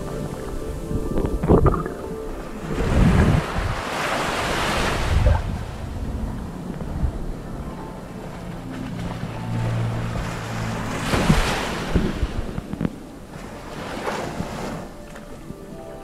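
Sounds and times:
underwater wave surge rushing: 0.0 - 12.8
low steady hum: 0.0 - 13.8.

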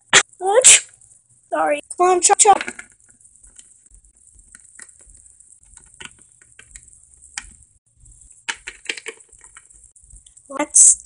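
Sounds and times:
plastic figures tapping and clicking: 2.2 - 7.7, 8.3 - 10.9.

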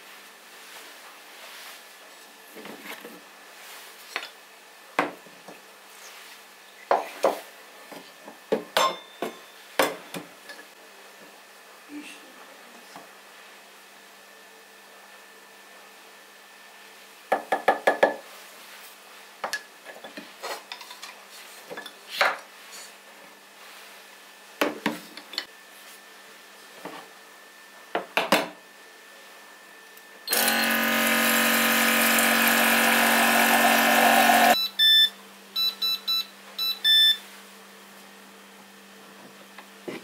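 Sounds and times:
electric appliance motor running: 30.3 - 34.6
short electronic beeps: 34.6 - 37.2.

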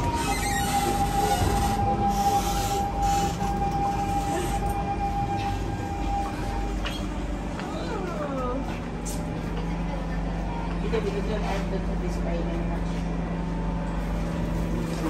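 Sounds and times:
train running gear rumble: 0.0 - 15.0.

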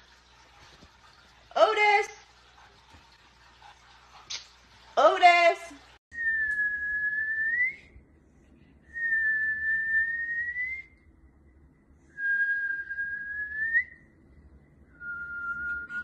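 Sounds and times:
person whistling high notes: 6.2 - 7.9, 15.0 - 16.0.

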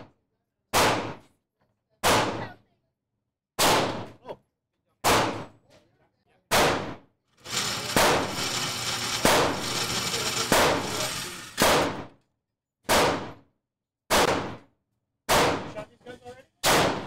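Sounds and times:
handgun shots: 0.8 - 1.2, 3.6 - 4.1, 5.0 - 5.5, 6.5 - 7.0, 11.6 - 12.0, 12.9 - 13.4, 14.1 - 14.6, 15.3 - 15.7, 16.6 - 17.0.

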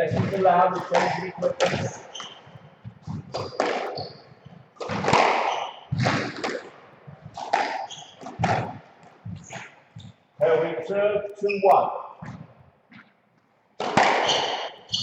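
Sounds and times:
shoes squeaking on wooden floor: 0.0 - 15.0
ball smacking off walls: 0.1 - 4.1, 4.8 - 9.7, 13.8 - 14.8
squash ball struck by rackets: 0.1 - 10.2, 13.8 - 15.0.

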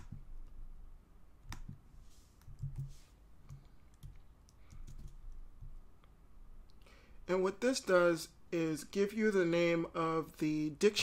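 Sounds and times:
mouse and keyboard clicks: 1.4 - 1.8.

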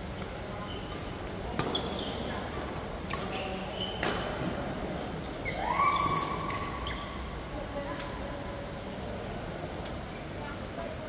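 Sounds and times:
shoes squeaking on court floor: 1.6 - 7.2.

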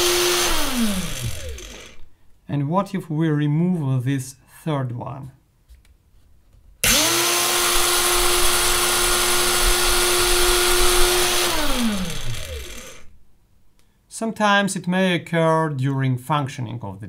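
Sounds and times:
angle grinder motor whining: 0.0 - 2.1, 6.8 - 13.1
grinder spinning down: 0.0 - 2.1, 6.8 - 13.1.

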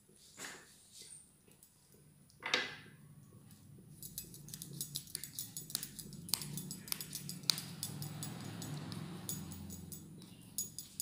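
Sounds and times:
metal bangles clinking: 3.9 - 11.0.

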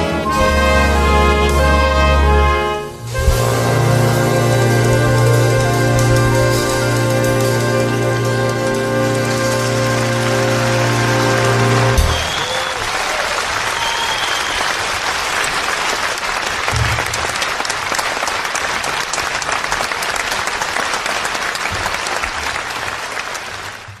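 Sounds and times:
orchestra holding a chord: 0.0 - 12.3
audience applauding: 6.6 - 24.0.

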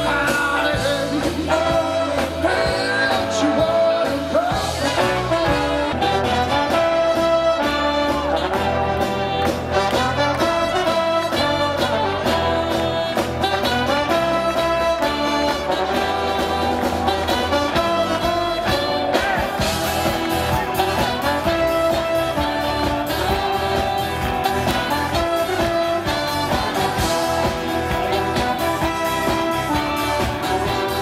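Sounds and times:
person singing: 0.0 - 6.9
live band playing: 0.0 - 31.0.

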